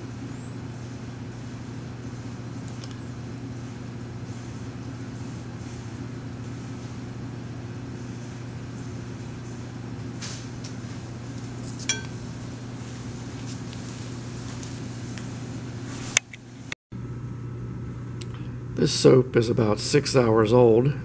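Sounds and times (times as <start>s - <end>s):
low mechanical hum: 0.0s - 21.0s
ringing clink of glass: 11.8s - 12.2s.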